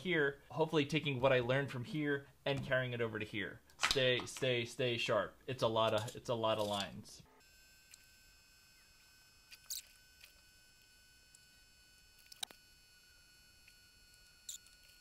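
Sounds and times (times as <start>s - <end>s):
faint high whine: 6.0s - 15.0s.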